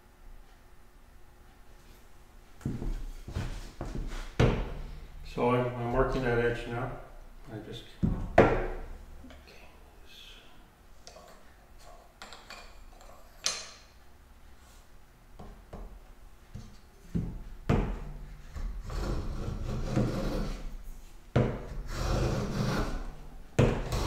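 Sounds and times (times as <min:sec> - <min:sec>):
hand plane shaving wood: 0:18.6 - 0:20.7, 0:21.8 - 0:23.1.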